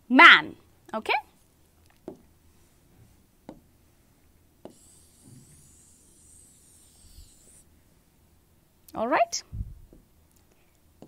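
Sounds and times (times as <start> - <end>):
wiping writing off a board: 4.6 - 7.7.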